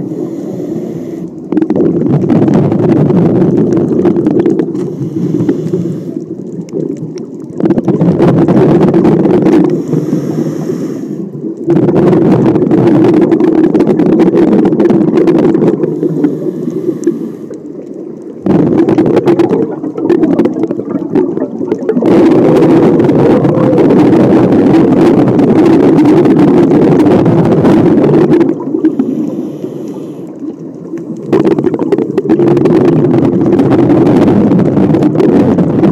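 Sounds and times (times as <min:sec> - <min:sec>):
hissing regulator inhalations: 0:00.0 - 0:01.4, 0:04.8 - 0:06.3, 0:09.7 - 0:11.4, 0:15.8 - 0:17.6, 0:28.8 - 0:30.4
exhaled bubbles underwater: 0:00.0 - 0:35.9.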